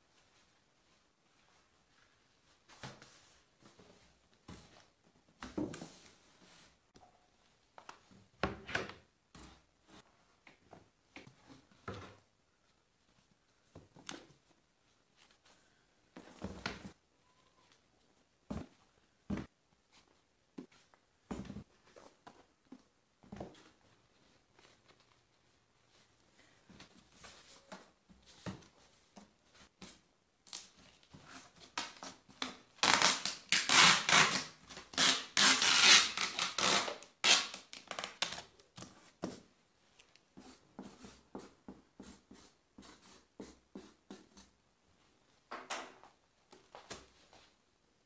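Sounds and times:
packing tape tearing off roll: 31.8s - 38.5s.

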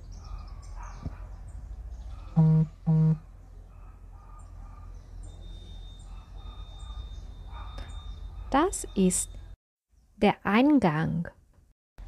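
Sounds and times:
faint bird chirps: 0.0s - 3.2s, 4.4s - 10.2s
low street background: 0.0s - 10.3s
vehicle horn honks: 2.4s - 3.2s.

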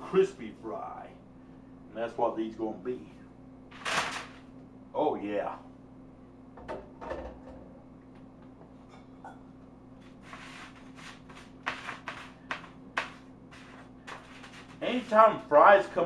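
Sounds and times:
faint steady hum: 0.0s - 16.0s
paper rustling: 10.2s - 15.2s.

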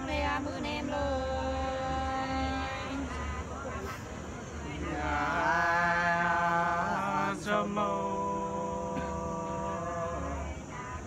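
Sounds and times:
men singing unaccompanied: 0.0s - 11.0s.

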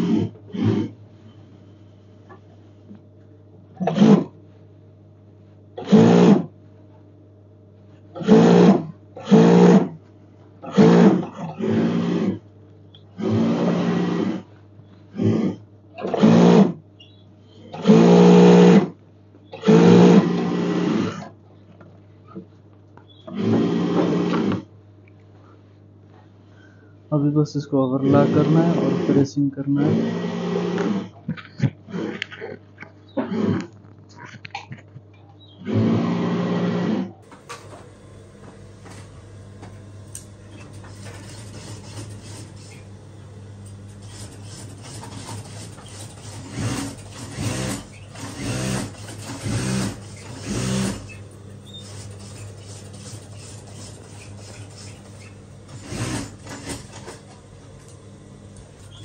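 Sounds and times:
overlock sewing machine stitching: 5.8s - 6.5s, 8.2s - 9.9s, 10.8s - 12.4s, 13.2s - 14.4s, 16.0s - 16.8s, 17.8s - 18.9s, 19.6s - 21.2s, 23.3s - 24.6s, 28.0s - 31.2s, 35.6s - 59.0s
steady low hum: 16.7s - 59.0s.

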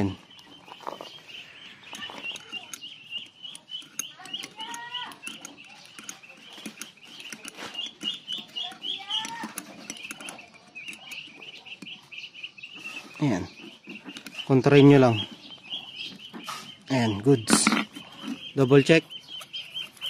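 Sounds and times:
birds chirping: 0.0s - 20.0s
hand tools clicking: 1.8s - 12.0s, 16.9s - 20.0s.

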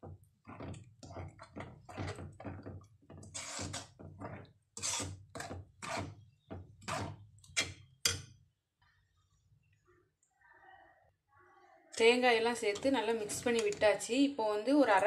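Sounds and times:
metal spoon stirring in pan: 0.1s - 8.3s, 12.5s - 14.1s.

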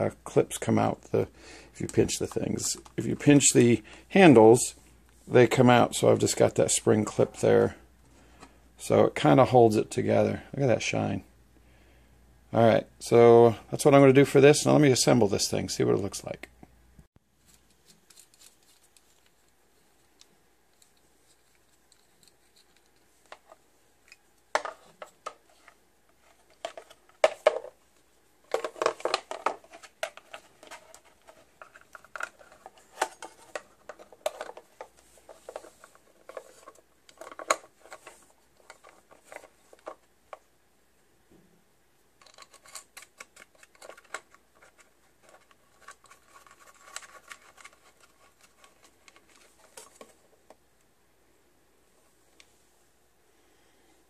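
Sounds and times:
metal and plastic parts clicking: 42.2s - 50.1s.

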